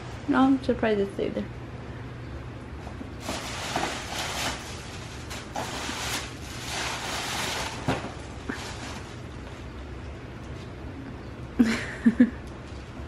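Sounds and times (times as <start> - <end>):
tissue paper rustling: 3.2 - 9.7.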